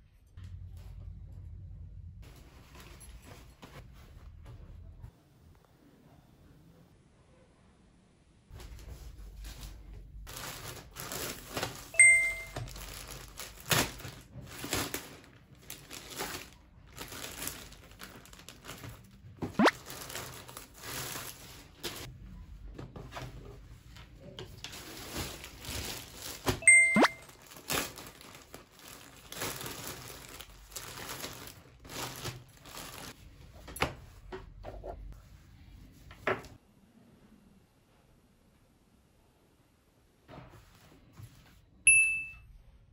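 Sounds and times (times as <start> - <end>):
short bright chime: 12.0 - 12.6, 26.6 - 27.2.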